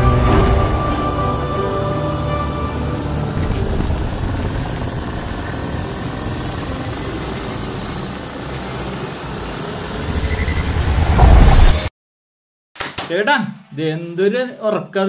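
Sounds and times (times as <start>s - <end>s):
helicopter hovering rumble: 0.0s - 11.7s.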